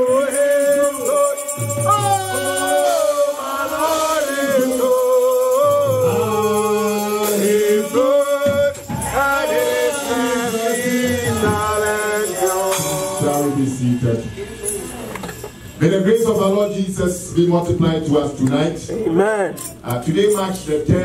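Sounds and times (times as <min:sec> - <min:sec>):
person singing: 0:00.0 - 0:13.6.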